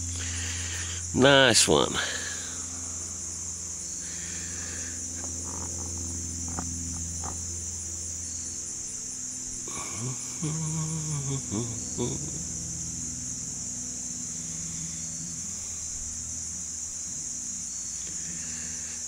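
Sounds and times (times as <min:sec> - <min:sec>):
crickets trilling: 0:00.0 - 0:19.0
low hum: 0:00.0 - 0:19.0
person murmuring: 0:09.6 - 0:12.6.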